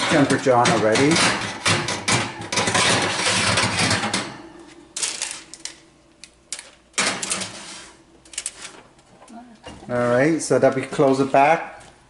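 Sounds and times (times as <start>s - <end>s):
baking tray clinking on rack: 0.0s - 4.4s
oven rack scraping on runners: 0.0s - 4.4s, 7.0s - 8.9s.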